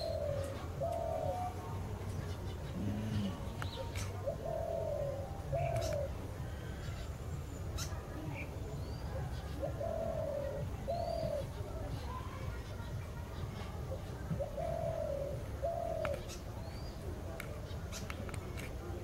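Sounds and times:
dove cooing: 0.0s - 12.0s, 13.4s - 16.5s
small birds chirping: 0.0s - 19.0s.

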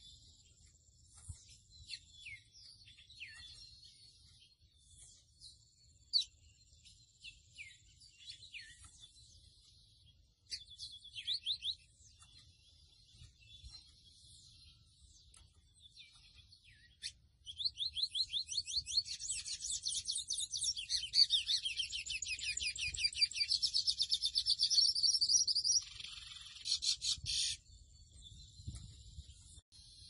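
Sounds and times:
seedeater bird song: 0.0s - 30.0s.

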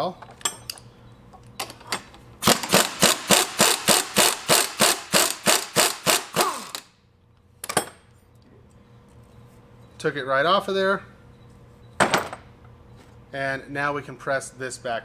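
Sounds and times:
impact wrench clacking: 2.4s - 6.9s.

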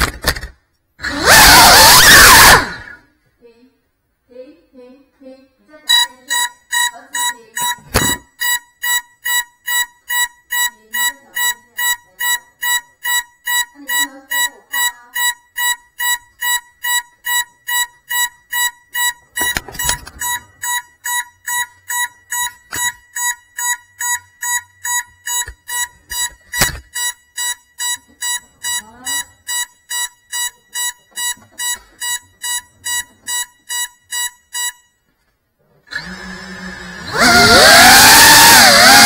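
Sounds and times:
electronic beeper beeping: 5.9s - 35.0s.

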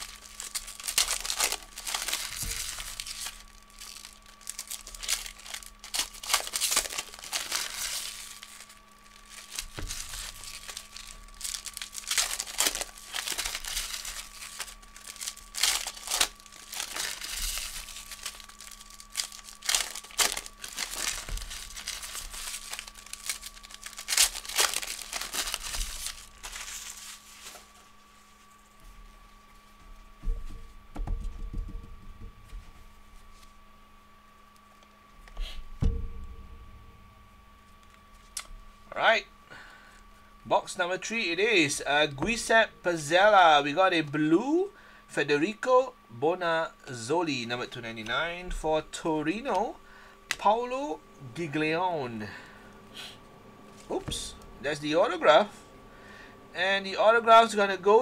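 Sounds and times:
foil wrappers tearing and crinkling: 0.0s - 28.8s.

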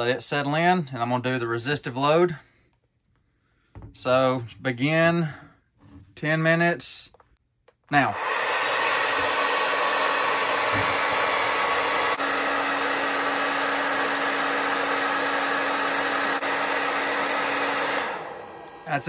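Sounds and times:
fans rushing air: 8.2s - 19.0s.

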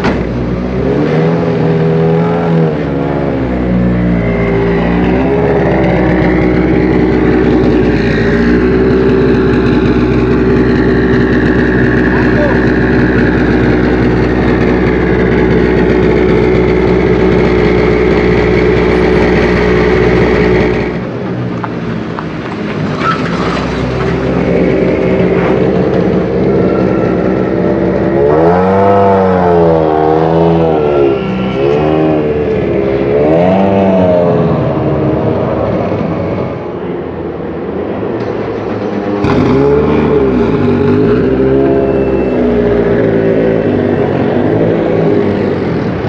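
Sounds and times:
rally car engine revving: 0.0s - 21.2s, 22.7s - 36.4s, 38.2s - 46.0s
rally car engine idling: 2.7s - 28.2s.

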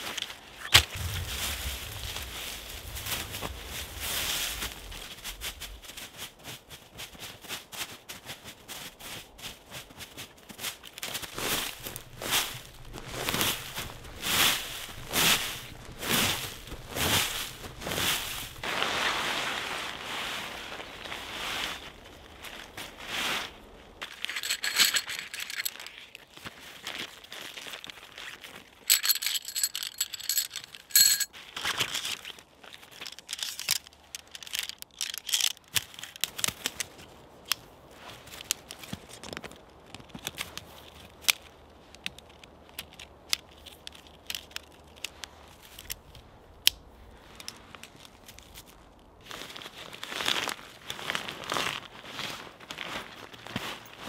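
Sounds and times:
rustling and crinkling: 0.0s - 54.0s
metallic jingling: 24.0s - 25.9s, 28.9s - 31.3s.

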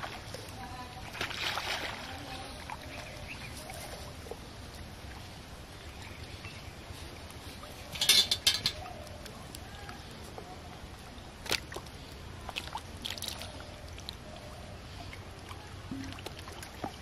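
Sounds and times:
outdoor background: 0.0s - 17.0s
water splashing off a net: 1.0s - 2.8s.

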